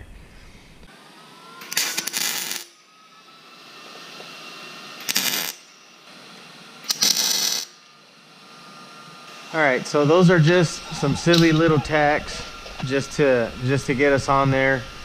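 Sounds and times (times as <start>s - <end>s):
welder crackling: 1.6s - 2.8s, 4.9s - 8.0s, 9.2s - 15.0s.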